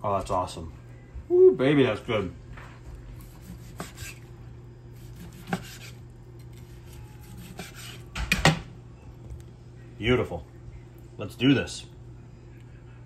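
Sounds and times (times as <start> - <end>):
knife sawing through steak: 3.2 - 4.3, 5.0 - 8.1.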